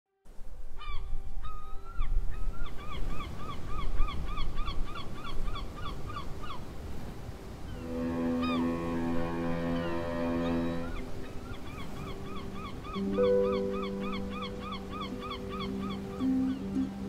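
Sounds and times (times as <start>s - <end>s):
wind: 0.2s - 17.0s
churning water of ferry wake: 5.2s - 17.0s
gulls calling: 7.6s - 17.0s.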